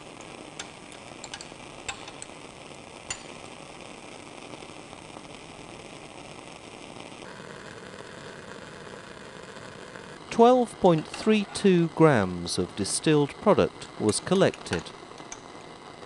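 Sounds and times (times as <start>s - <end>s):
steady hiss: 0.0s - 16.0s
glassware clinking: 0.2s - 2.4s, 3.1s - 3.5s.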